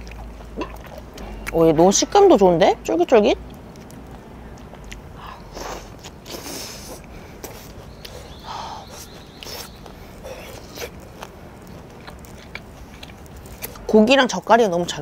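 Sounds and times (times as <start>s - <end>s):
chewing with mouth clicks: 0.0s - 2.1s, 3.4s - 13.9s
breathy puffs: 5.1s - 10.8s.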